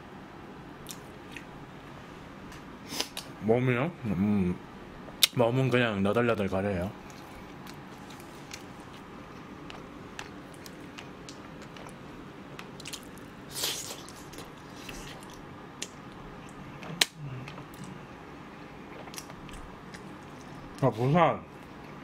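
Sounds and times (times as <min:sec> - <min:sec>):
person chewing food: 0:07.0 - 0:20.8.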